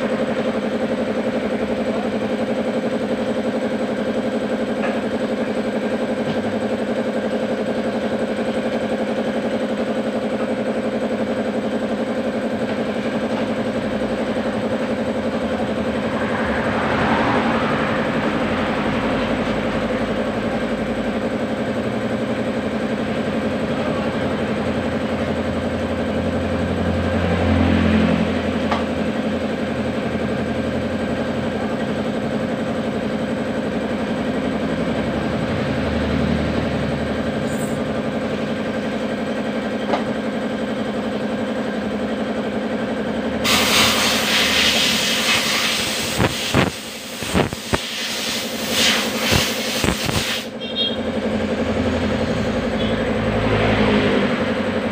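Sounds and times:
engine droning: 0.0 - 47.8, 48.5 - 54.9
hiss: 43.4 - 50.5.

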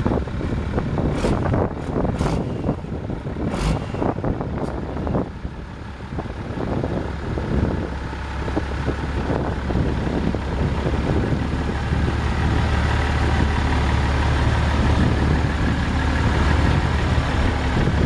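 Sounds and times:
diesel truck engine humming: 0.0 - 18.0.

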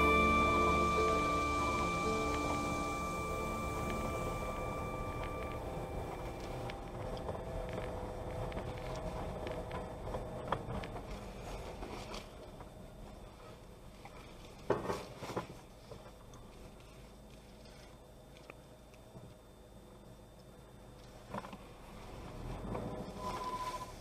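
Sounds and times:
car driving on dirt road: 0.0 - 14.6, 21.1 - 24.0.

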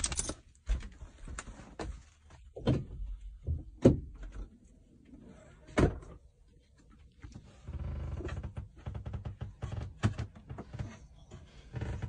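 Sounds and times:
knocks and thumps inside van: 2.5 - 4.4.

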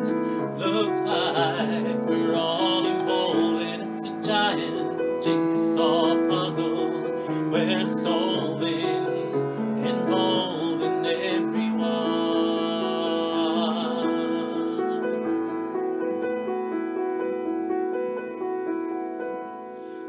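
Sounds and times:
man singing: 0.0 - 15.6
slow piano playing: 0.0 - 20.0.

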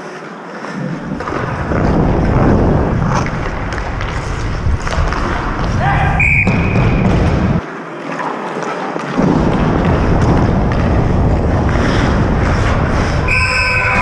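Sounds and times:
wind rumbling on microphone: 0.8 - 7.6, 9.2 - 14.0.

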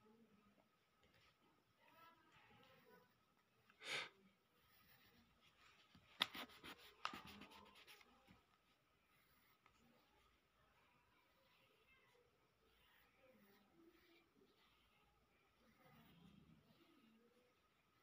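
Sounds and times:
pencil scratching on paper: 4.5 - 10.4, 11.2 - 18.0.

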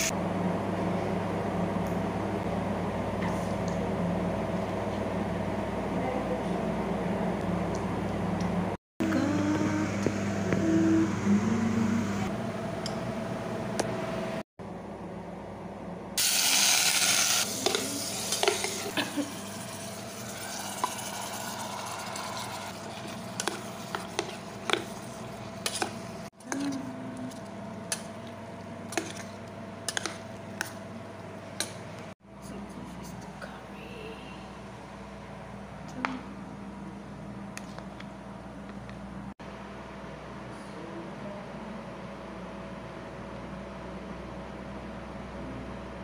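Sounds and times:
steady low hum: 0.0 - 16.2.

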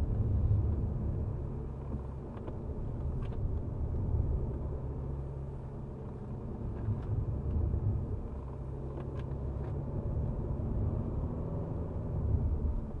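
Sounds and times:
car engine drone from cabin: 0.0 - 13.0
road noise: 0.0 - 13.0.

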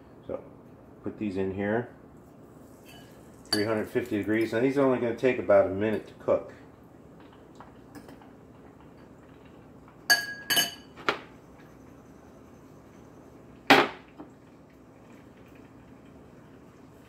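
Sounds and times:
fork clinking against glass bowl: 2.8 - 3.8, 10.1 - 10.9
glass bowls knocking on stovetop: 10.1 - 11.2.

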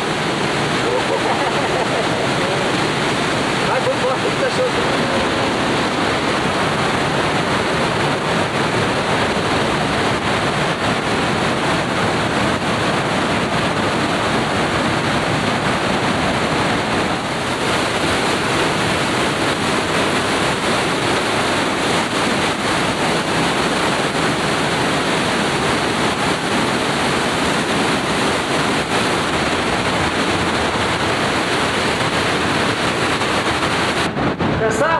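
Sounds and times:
rushing waterfall: 0.0 - 34.9.

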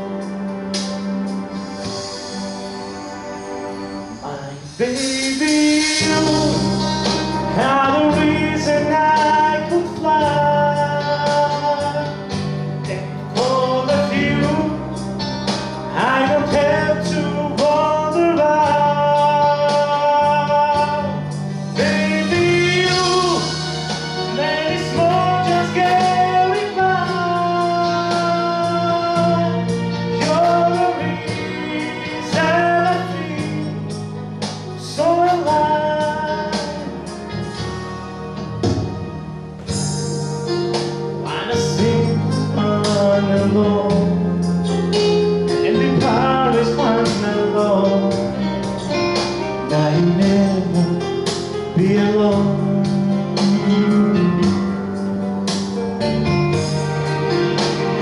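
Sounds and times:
backing music with steady beat: 0.0 - 58.0
man singing into microphone: 4.2 - 15.1, 15.9 - 23.7, 24.3 - 34.0, 34.7 - 37.2, 41.2 - 44.9, 45.5 - 55.0.

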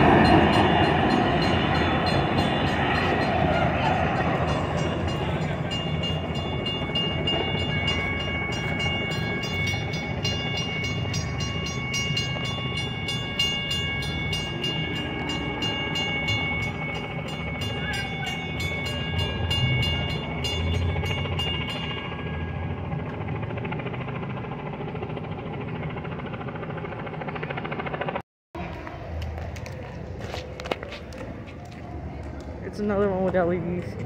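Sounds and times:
railroad crossing bell ringing: 0.0 - 23.6
train rumbling: 0.0 - 26.0, 28.6 - 34.0.

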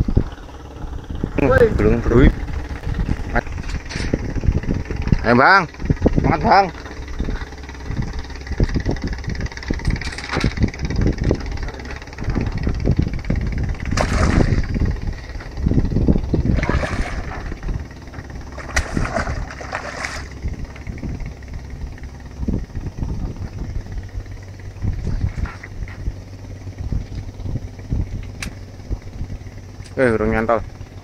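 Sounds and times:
low rumble: 0.0 - 31.0
fish splashing at water surface: 13.9 - 14.7, 16.5 - 17.6, 18.5 - 20.4.

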